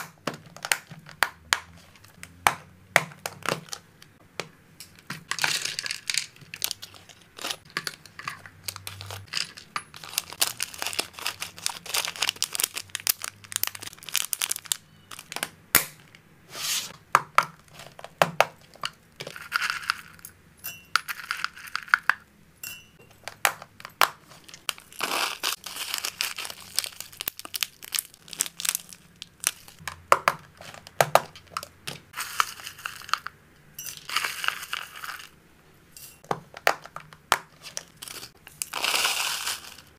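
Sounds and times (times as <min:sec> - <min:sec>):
plastic containers clicking: 0:00.0 - 0:07.0
dry pet food rustling and crunching: 0:05.2 - 0:15.4, 0:17.7 - 0:20.2, 0:21.0 - 0:22.2, 0:23.2 - 0:29.9, 0:30.5 - 0:35.4, 0:36.6 - 0:39.9.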